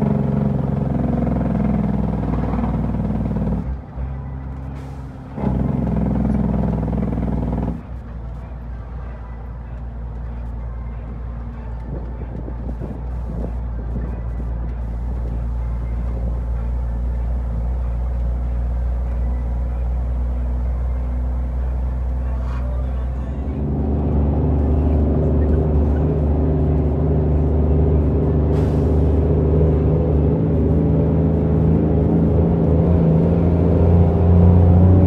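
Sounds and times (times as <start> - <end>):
truck diesel engine running: 0.0 - 35.0.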